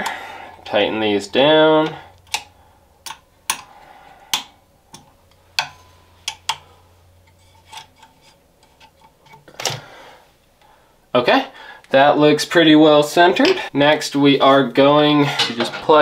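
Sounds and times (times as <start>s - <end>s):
allen key clicking on screws: 1.8s - 3.7s.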